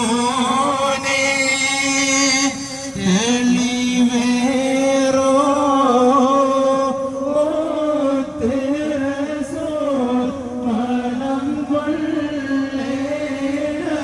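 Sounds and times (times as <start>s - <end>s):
man chanting devotional song: 0.0s - 14.0s.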